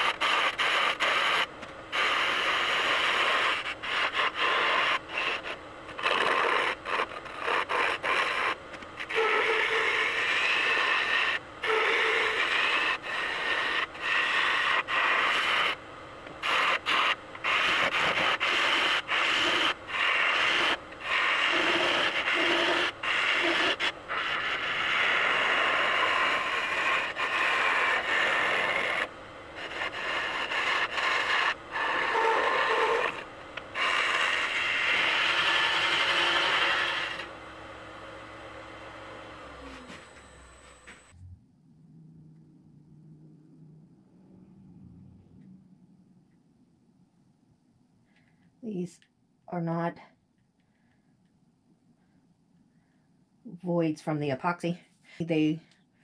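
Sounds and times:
tool scraping wood on lathe: 0.0s - 41.1s.

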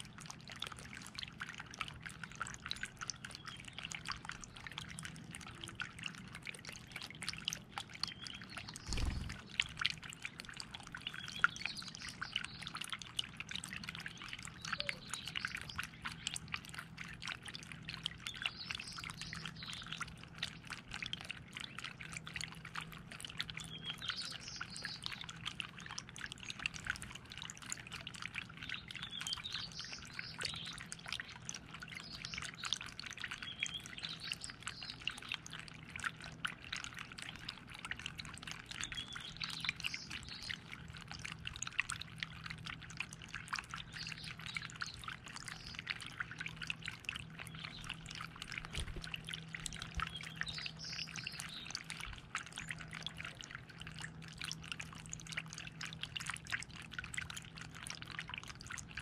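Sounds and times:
fountain water trickling and dripping: 0.0s - 59.0s
faint birds chirping: 47.2s - 53.6s.

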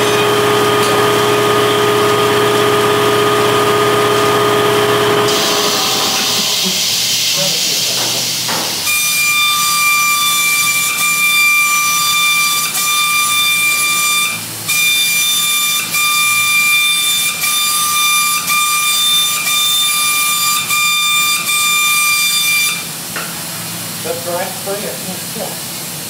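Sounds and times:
spray gun air hiss: 5.3s - 8.9s.

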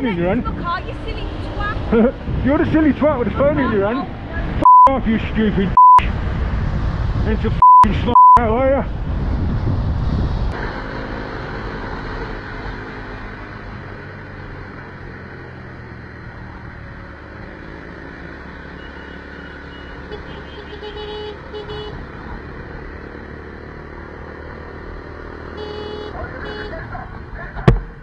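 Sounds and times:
road and traffic noise: 0.0s - 28.0s
short beeps: 4.6s - 4.9s, 5.8s - 6.0s, 7.6s - 8.4s.

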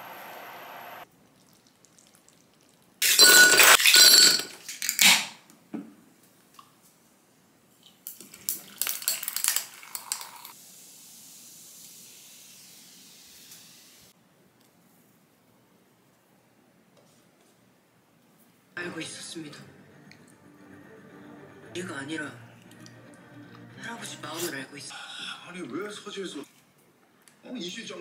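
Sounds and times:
soda pouring into a glass: 8.3s - 10.6s
fizz of bubbles: 8.4s - 10.6s.

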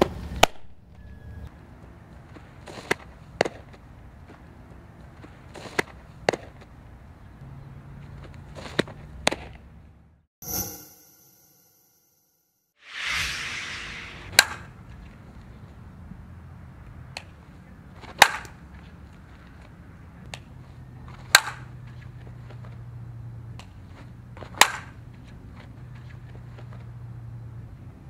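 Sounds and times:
bat cracking against ball: 18.0s - 18.6s, 21.2s - 21.7s, 24.4s - 25.0s.

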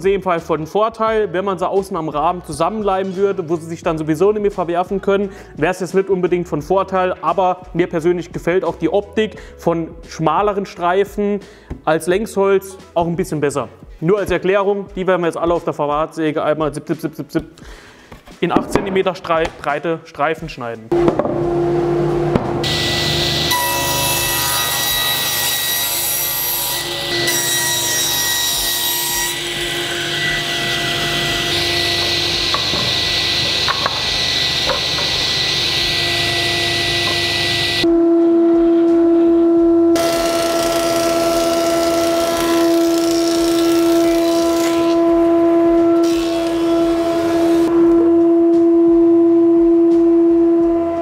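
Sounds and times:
table saw cutting wood: 20.9s - 37.9s, 40.0s - 48.3s
thickness planer humming: 20.9s - 51.0s.

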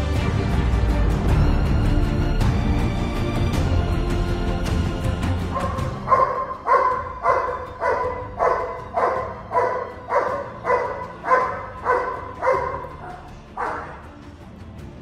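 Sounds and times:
dog barking: 5.6s - 14.0s.

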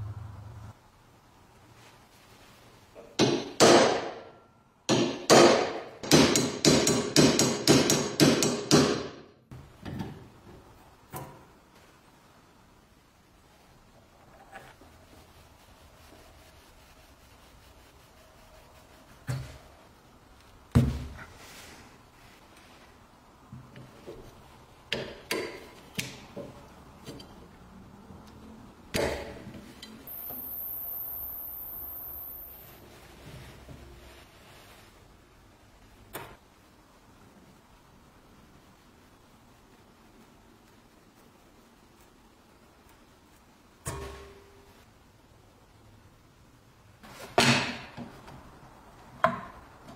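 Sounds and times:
high-pitched hiss: 30.0s - 33.2s.

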